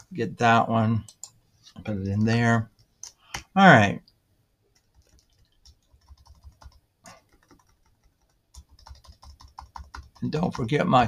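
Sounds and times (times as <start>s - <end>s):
keyboard keystrokes: 4.8s - 10.6s.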